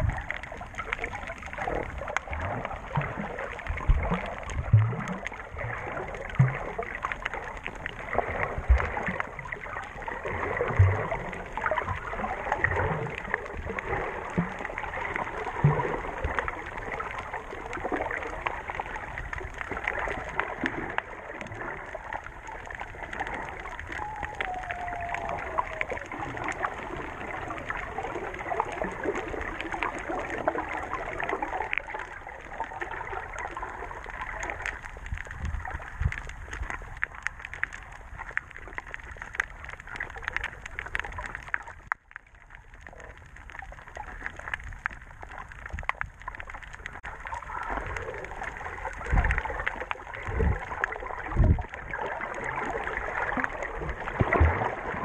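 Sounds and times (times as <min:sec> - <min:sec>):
underwater crackling and bubbling: 0:00.0 - 0:55.0.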